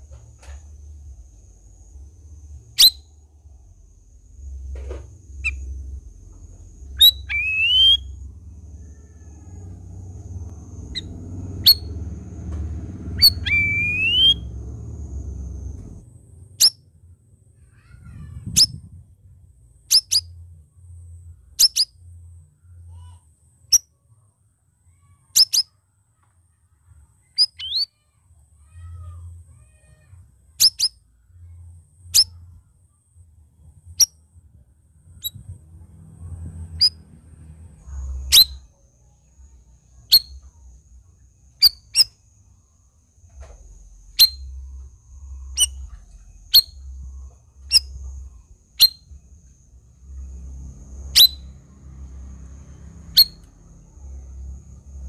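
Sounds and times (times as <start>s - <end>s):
low rumble: 0.0s - 22.8s, 31.2s - 41.6s, 42.3s - 55.0s
bird chirps dropping in pitch: 2.7s - 3.1s, 6.9s - 8.2s, 10.9s - 12.0s, 13.2s - 14.5s, 27.3s - 28.0s, 38.2s - 38.7s, 41.6s - 42.1s, 44.1s - 44.6s, 45.4s - 46.9s, 48.8s - 49.1s, 51.2s - 51.5s.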